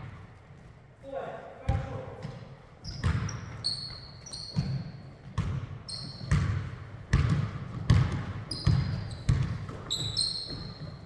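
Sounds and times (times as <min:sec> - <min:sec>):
sneaker squeaks: 0:01.8 - 0:11.0
basketball dribbling on hardwood: 0:04.5 - 0:11.0.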